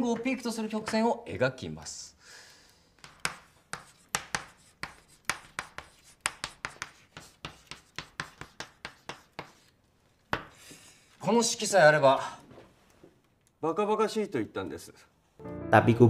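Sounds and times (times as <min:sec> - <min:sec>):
chalk tapping and scratching on blackboard: 0:03.0 - 0:10.9.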